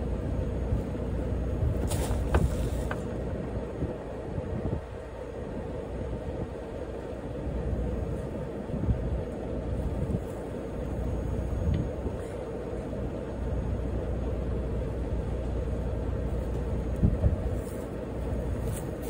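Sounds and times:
diesel engine idling: 0.0 - 19.0
hay bale thumps: 1.7 - 3.1.

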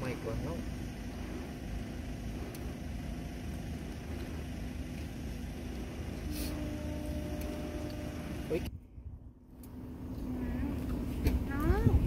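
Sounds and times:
higher hum: 0.0 - 12.0
vehicle engine idling: 0.0 - 12.0.

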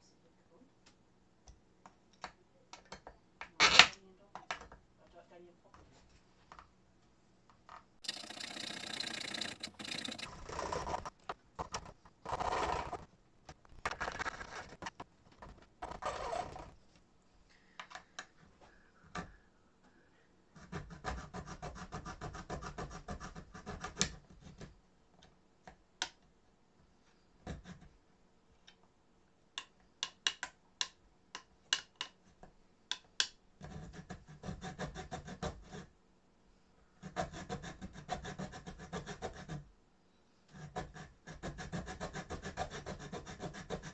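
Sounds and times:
blade ticking on track: 8.0 - 10.3
saw rasping through metal rail: 8.1 - 11.0.

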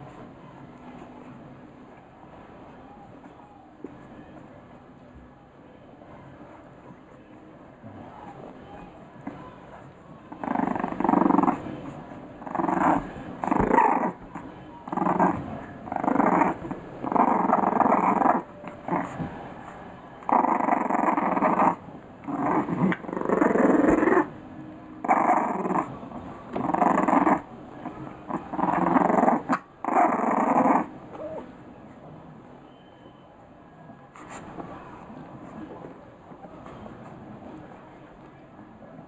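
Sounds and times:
puppies growling: 10.4 - 19.4, 20.2 - 24.4, 25.0 - 31.5.

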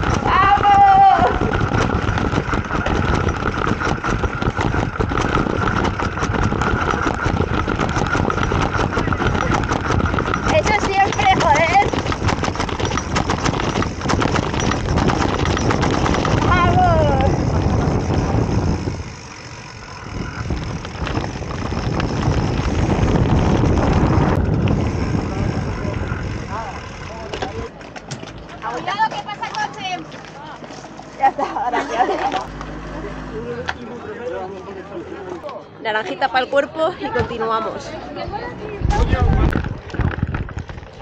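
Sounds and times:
wind buffeting microphone: 0.0 - 27.7, 36.6 - 41.0
bike clattering down steps: 0.0 - 31.0.

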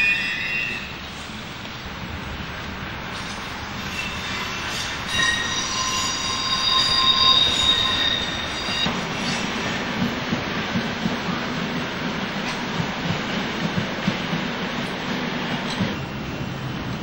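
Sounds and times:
train wheels squealing on rails: 0.0 - 1.5, 3.1 - 10.2
train running rumble: 0.8 - 17.0.

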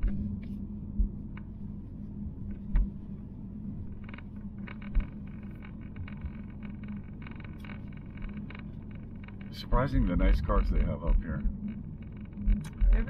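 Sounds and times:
low thumps: 3.8 - 13.0.

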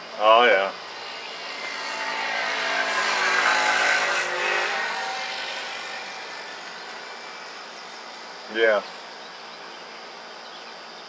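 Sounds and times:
vehicle driving past: 0.8 - 8.3.

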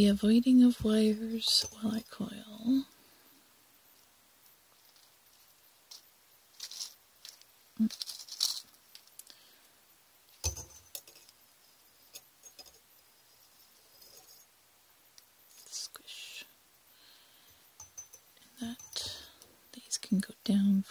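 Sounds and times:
small metallic clinks: 10.4 - 11.4, 17.5 - 19.5.

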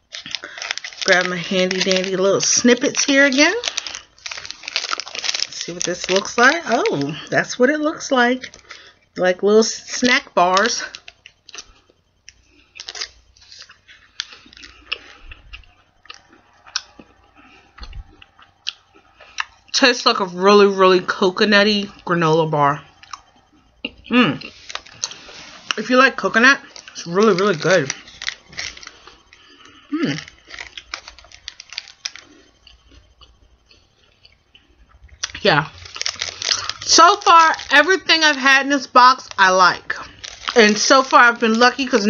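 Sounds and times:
person chewing crunchy snack: 0.0 - 7.3, 10.8 - 19.7, 23.0 - 25.8, 26.6 - 38.3, 39.2 - 41.9.

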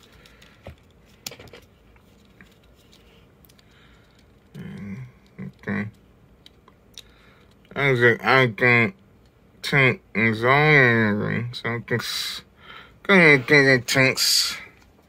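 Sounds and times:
person grunting or mumbling: 4.5 - 6.0.

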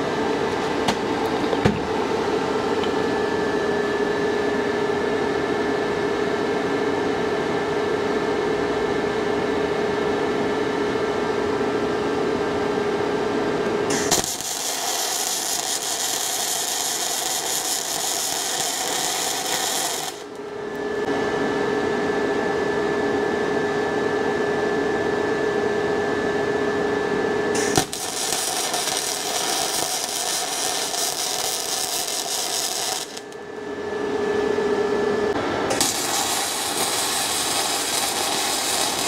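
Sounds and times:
welder hum with whine: 0.0 - 39.0
arc welding crackling hiss: 13.9 - 20.4, 27.6 - 33.4, 35.7 - 39.0.

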